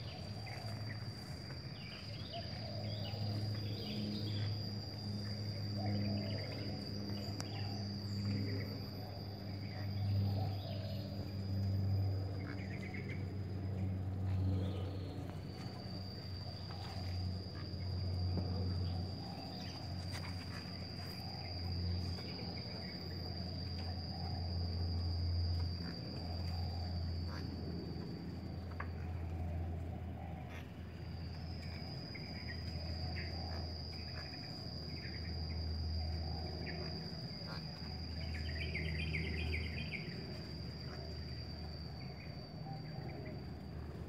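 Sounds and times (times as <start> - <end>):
high-pitched insect buzzing: 0.0 - 29.0
low steady hum: 0.0 - 44.0.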